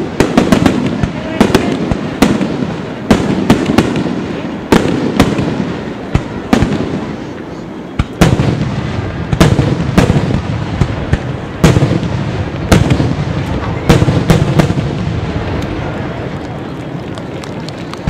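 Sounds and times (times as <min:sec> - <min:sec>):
rolling rumble: 0:08.6 - 0:18.0.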